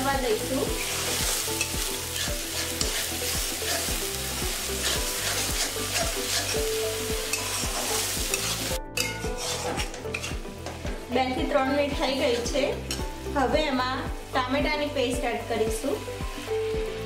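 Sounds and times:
paste sizzling in oil: 0.0s - 17.0s
metal spatula scraping pan: 0.8s - 4.0s, 4.7s - 10.8s.

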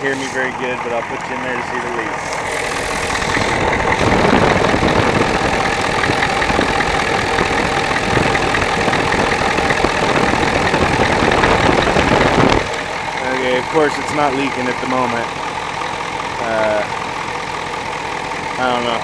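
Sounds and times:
diesel engine idling: 0.0s - 19.0s.

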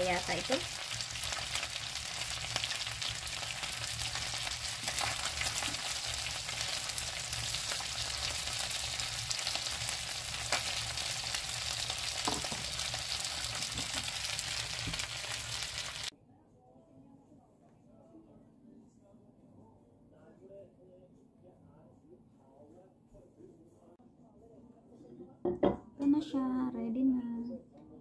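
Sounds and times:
chicken sizzling in oil: 0.0s - 16.1s.

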